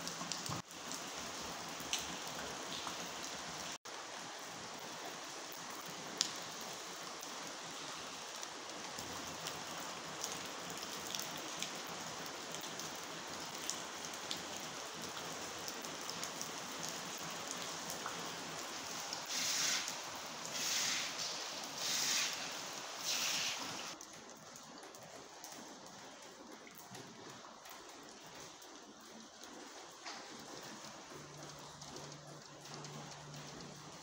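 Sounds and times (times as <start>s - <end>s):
water dripping on concrete floor: 0.0s - 3.8s, 4.9s - 34.0s
sharp drips: 8.2s - 25.5s.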